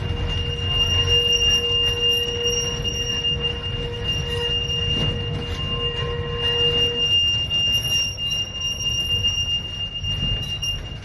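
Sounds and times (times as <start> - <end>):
tram running: 0.0 - 11.0.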